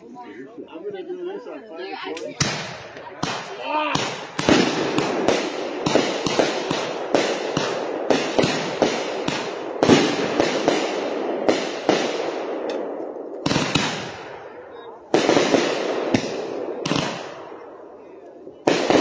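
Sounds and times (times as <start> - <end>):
fireworks banging: 2.2 - 19.0.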